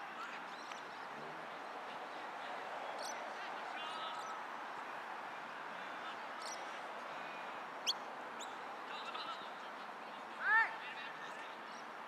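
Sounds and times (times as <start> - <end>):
steady background noise: 0.0 - 12.0
bird chirps: 3.0 - 3.2.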